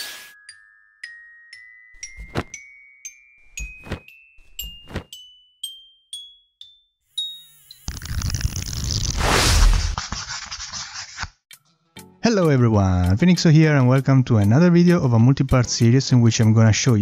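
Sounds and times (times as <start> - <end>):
dull thuds: 2.0 - 2.6.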